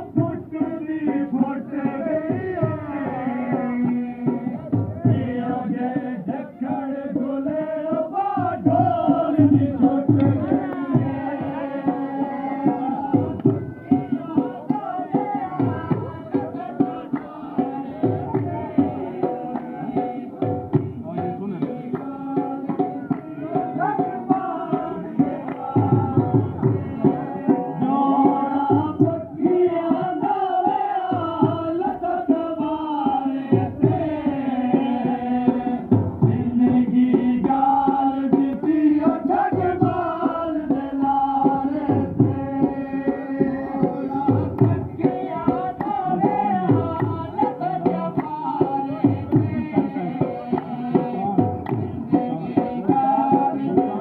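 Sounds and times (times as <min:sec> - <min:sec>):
dhol beat: 0:00.0 - 0:54.0.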